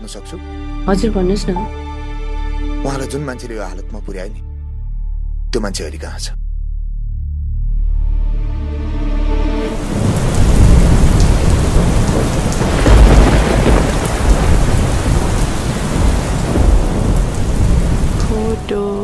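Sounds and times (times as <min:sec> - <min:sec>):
heavy rain pouring: 0:09.3 - 0:19.0
thunder rumbling: 0:09.7 - 0:19.0.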